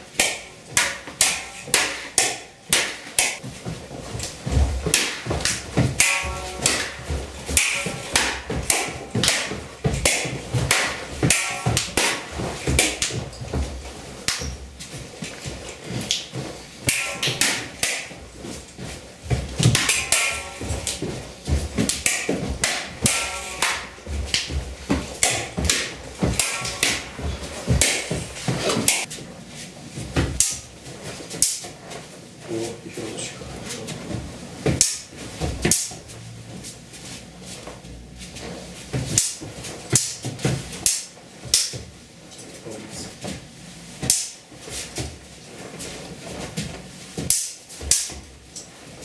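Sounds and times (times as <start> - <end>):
swords striking shields: 0.1 - 29.2, 30.1 - 31.8, 33.9 - 36.2, 38.4 - 41.9, 44.0 - 45.2, 47.2 - 48.4
swords clashing: 0.2 - 3.5, 4.1 - 29.1, 34.6 - 36.0, 39.1 - 41.9, 44.0 - 44.4, 47.2 - 48.2.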